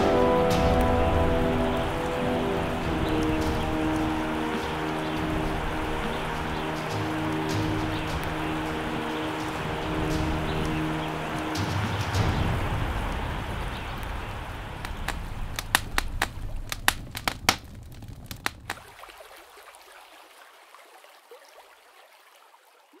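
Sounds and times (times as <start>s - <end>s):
fire crackling and hissing: 0.0s - 19.1s
sharp pops of fire: 11.5s - 18.9s.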